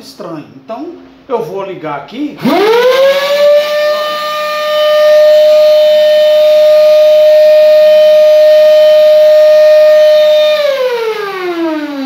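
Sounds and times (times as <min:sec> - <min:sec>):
vacuum cleaner motor whine: 0:02.4 - 0:12.0.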